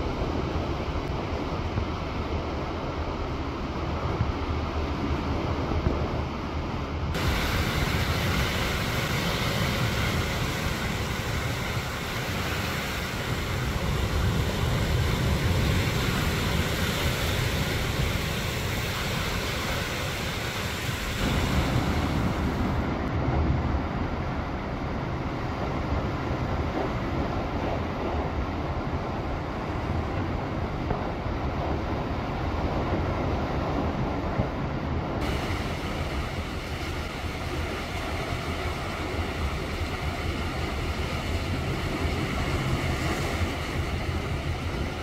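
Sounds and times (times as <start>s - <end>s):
waves washing over rocks: 7.1s - 28.4s, 35.2s - 45.0s.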